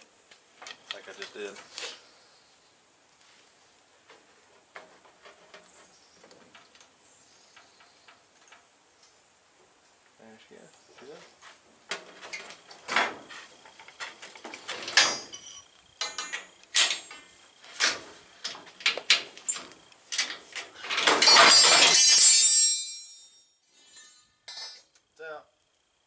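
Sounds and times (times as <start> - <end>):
metal hand tools clinking: 14.9 - 17.2, 19.5 - 24.9
coil spring scraping rattle: 19.4 - 24.9.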